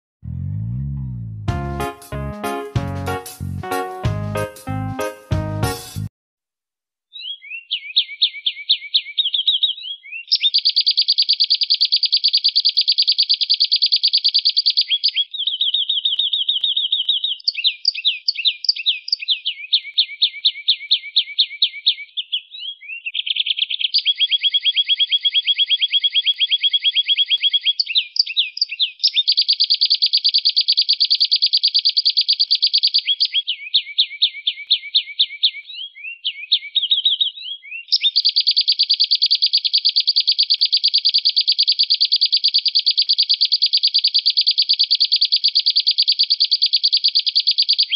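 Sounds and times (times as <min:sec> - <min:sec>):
canary singing trills: 0:07.1 - 0:47.9.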